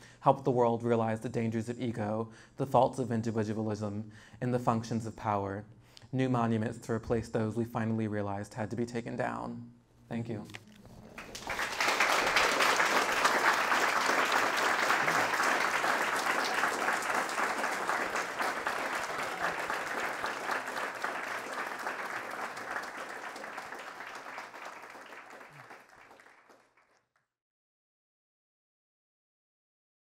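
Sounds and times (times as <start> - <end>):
audience applauding: 10.8 - 27.0.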